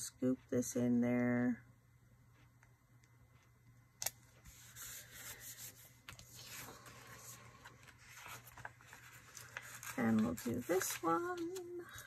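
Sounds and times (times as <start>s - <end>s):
paper pages rustling: 4.4s - 12.0s.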